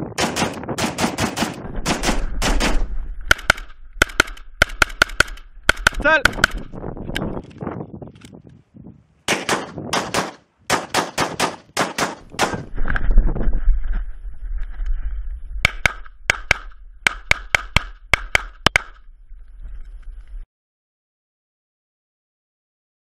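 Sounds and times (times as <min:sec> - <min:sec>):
pistol shots in quick pairs: 0:00.2 - 0:06.7, 0:09.3 - 0:12.7
rapid rifle gunfire: 0:00.2 - 0:06.7, 0:09.3 - 0:12.7
low microphone rumble: 0:01.6 - 0:07.5, 0:12.2 - 0:17.1.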